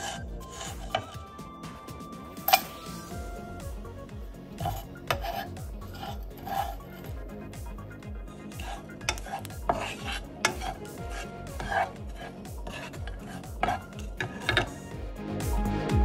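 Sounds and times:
wooden spatula scraping a pan: 0.0s - 1.4s, 4.5s - 15.0s
background music with a beat: 0.0s - 16.0s.

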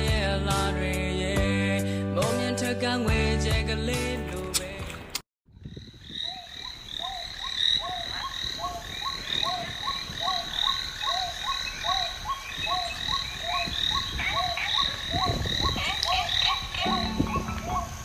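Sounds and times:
frogs croaking: 5.5s - 18.0s
constant high tone: 16.6s - 18.0s.

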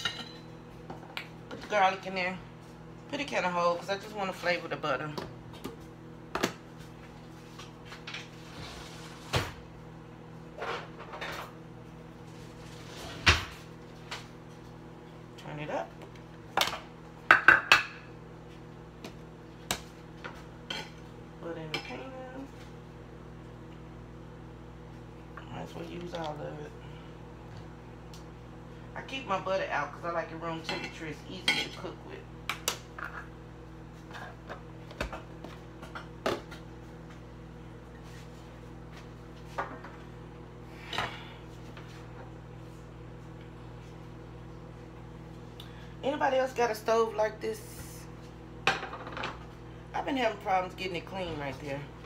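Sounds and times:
knocks and clinks of kitchen items: 0.0s - 1.1s
steady low hum: 0.0s - 52.0s.

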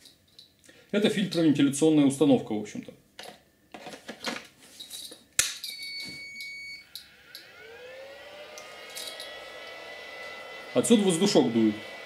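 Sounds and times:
electronic beep: 5.7s - 7.0s
blower fan whine: 5.8s - 12.0s.

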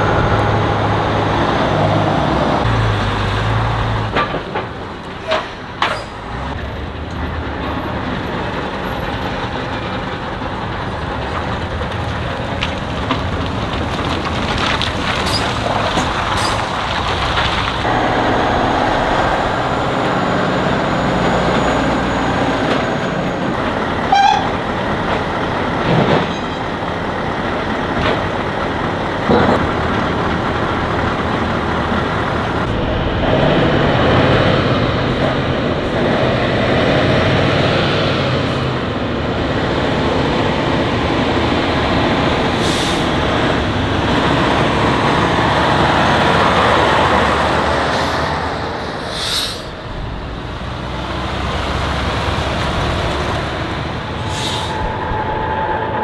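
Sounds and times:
diesel trucks driving past: 0.0s - 56.0s
brief horn toot: 24.1s - 24.6s.

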